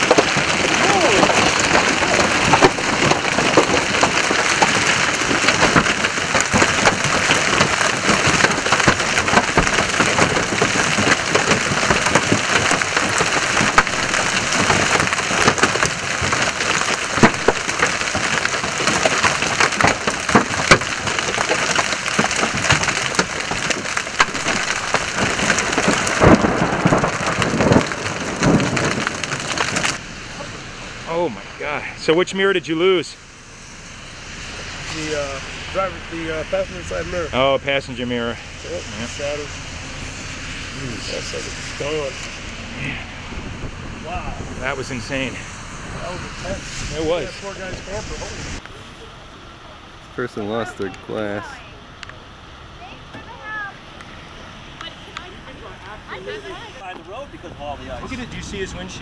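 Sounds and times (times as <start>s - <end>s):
hailstone cracks: 0.0s - 31.2s, 38.2s - 48.8s
hailstones clattering on road and cars: 0.0s - 49.0s, 49.9s - 59.0s.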